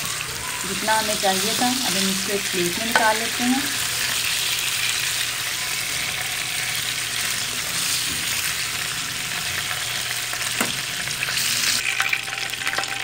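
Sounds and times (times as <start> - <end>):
chicken sizzling in hot oil: 0.0 - 13.0
spoon stirring in pan: 2.6 - 5.1.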